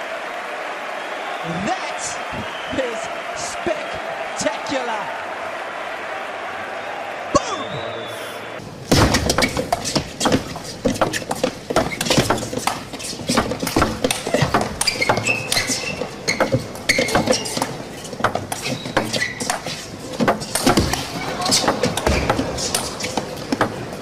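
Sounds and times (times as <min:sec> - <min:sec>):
shoes squeaking: 0:09.3 - 0:24.0.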